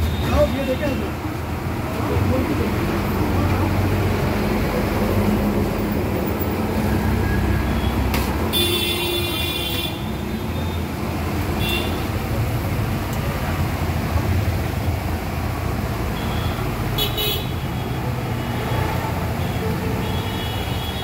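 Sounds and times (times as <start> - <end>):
road traffic noise: 0.0 - 21.0
vehicle horn honking: 7.8 - 10.1.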